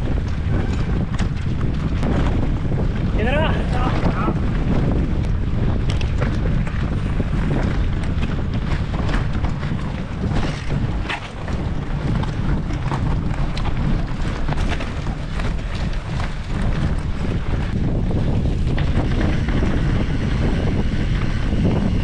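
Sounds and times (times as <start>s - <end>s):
bike knocking and rattling: 0.0s - 22.0s
tyres rumbling on dirt: 0.0s - 22.0s
wind buffeting microphone: 0.0s - 22.0s.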